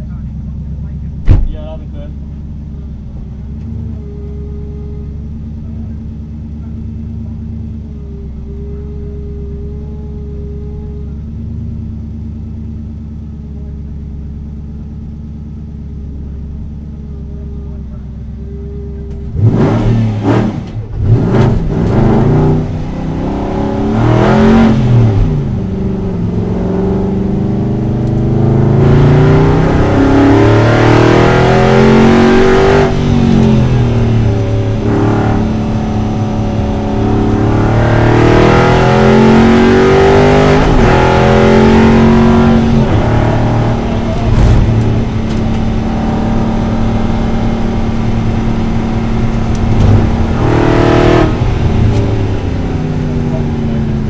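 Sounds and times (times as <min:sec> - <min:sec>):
race car engine revving: 0:16.2 - 0:54.0.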